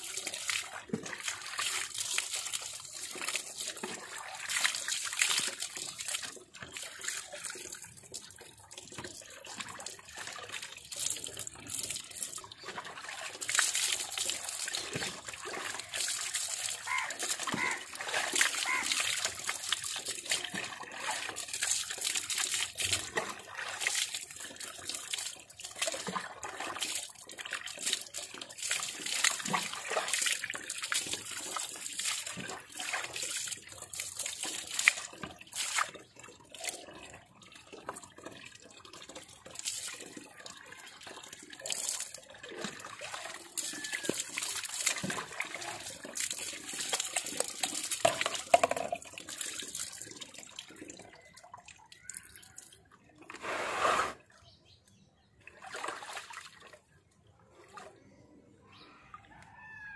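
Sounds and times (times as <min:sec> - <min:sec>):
water splashing onto ground: 0:00.0 - 0:36.8, 0:41.3 - 0:51.3
hands squeezing water from hair: 0:41.3 - 0:53.5.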